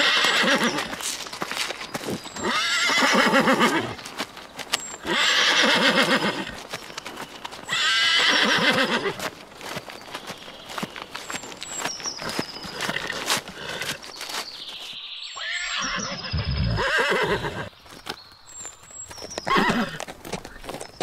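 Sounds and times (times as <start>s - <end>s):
horse whinnying: 0.0s - 0.9s, 2.4s - 4.0s, 5.0s - 6.6s, 7.7s - 9.2s, 12.8s - 14.0s, 15.4s - 17.7s, 19.5s - 20.0s
hoof clops: 0.0s - 15.0s, 15.7s - 21.0s.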